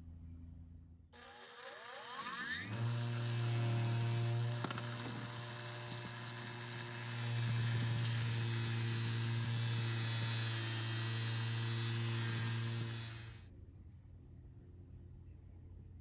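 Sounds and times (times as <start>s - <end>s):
wire brush scratching steel: 1.2s - 13.4s
bench grinder motor humming: 1.2s - 13.5s.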